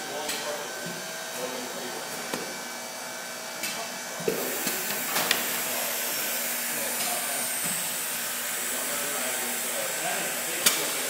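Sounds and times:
machinery hissing: 0:04.3 - 0:11.0.

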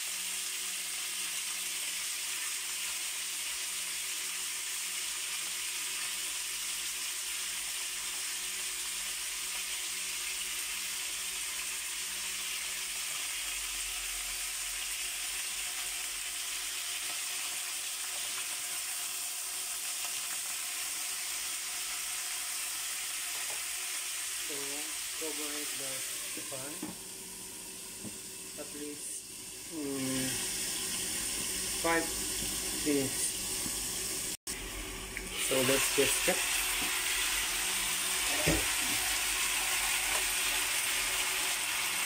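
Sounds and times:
chicken sizzling in oil: 0:00.0 - 0:42.0.

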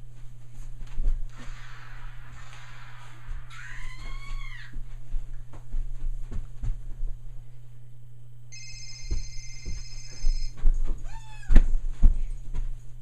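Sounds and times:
electronic beeping tone: 0:08.5 - 0:10.6.

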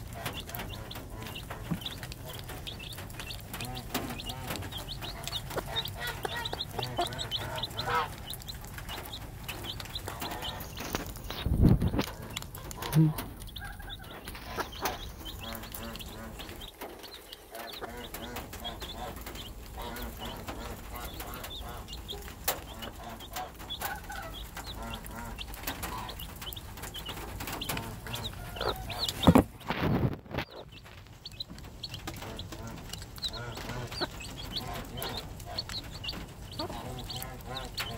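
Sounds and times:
chicks peeping: 0:00.0 - 0:37.9
hen clucking softly: 0:00.0 - 0:37.9
loud bumps: 0:29.0 - 0:30.3.

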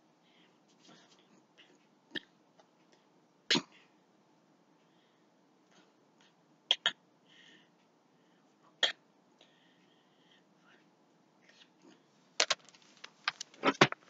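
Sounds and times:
faint breathing: 0:00.2 - 0:01.8, 0:04.8 - 0:06.4, 0:07.2 - 0:08.6, 0:09.4 - 0:12.2.

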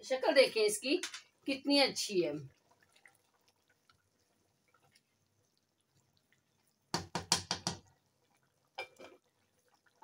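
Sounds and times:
spatula stirring thick gravy: 0:02.4 - 0:10.0
spatula knocking against pot: 0:06.9 - 0:07.9.

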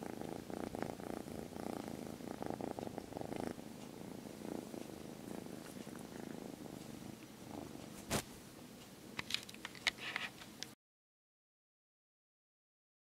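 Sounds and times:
kitten purring: 0:00.0 - 0:08.2.

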